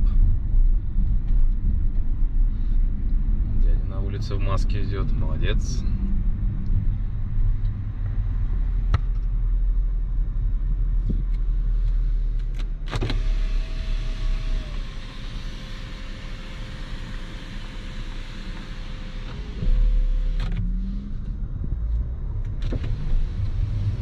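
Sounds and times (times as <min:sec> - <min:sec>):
car engine and road rumble: 0:00.0 - 0:24.0
electric motor whine: 0:12.9 - 0:20.6.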